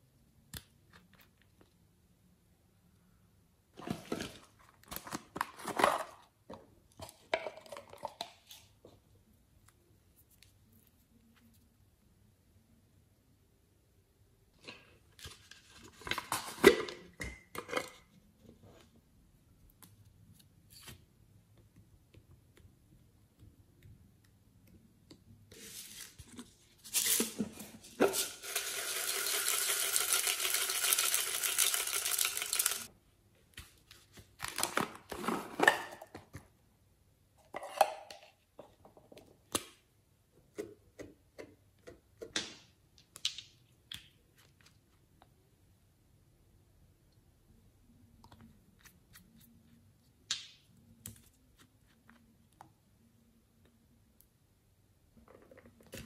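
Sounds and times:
pouring rattle: 28.2 - 32.9.

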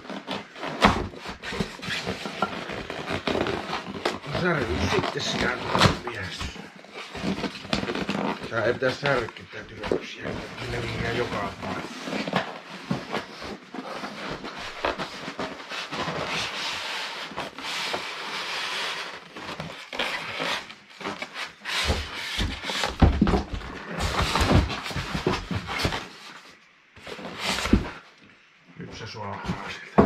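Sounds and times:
foam scraping against cardboard: 0.0 - 28.0
knocks and thumps: 21.8 - 26.1.

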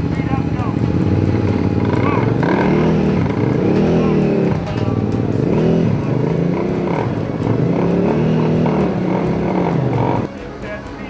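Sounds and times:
motorcycle engines revving: 0.0 - 11.0.

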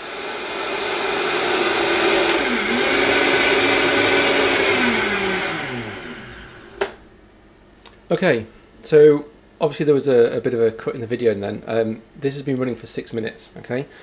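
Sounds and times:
blender motor running: 0.0 - 7.0.

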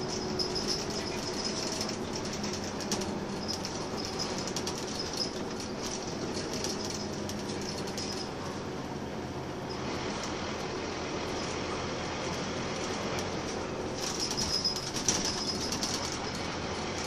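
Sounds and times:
bus fittings rattling and clicking: 0.0 - 8.8, 12.2 - 17.0
bus diesel engine running: 0.0 - 17.0.

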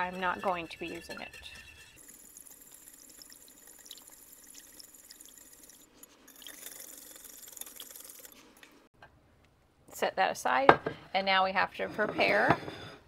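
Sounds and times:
whisk beating liquid in a dish: 0.0 - 5.8.

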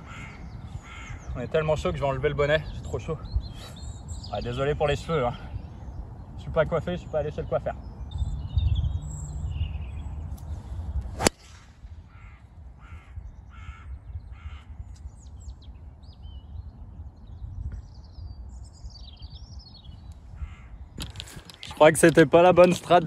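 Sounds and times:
crow cawing: 0.0 - 1.2, 12.1 - 14.8, 20.4 - 20.8
small birds chirping: 0.0 - 23.0
golf ball struck: 11.2 - 11.9.

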